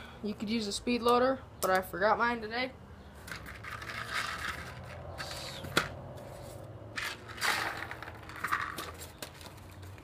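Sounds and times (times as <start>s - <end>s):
pellets scraping and rustling: 3.4s - 9.9s.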